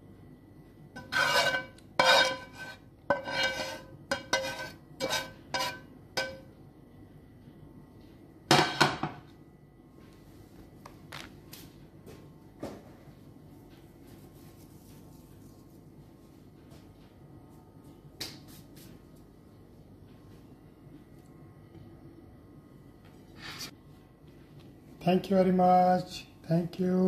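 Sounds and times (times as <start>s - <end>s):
metal spoon clinking on cookware: 1.0s - 6.5s.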